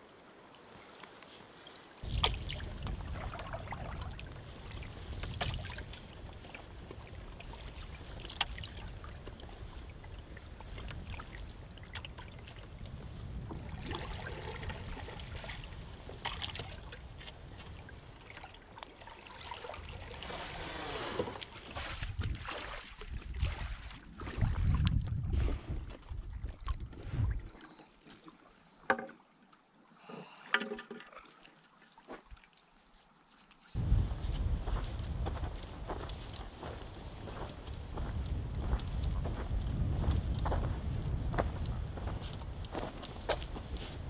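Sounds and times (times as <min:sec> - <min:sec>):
paddle strokes splashing: 0:01.0 - 0:24.6
water lapping at hull: 0:01.5 - 0:37.9.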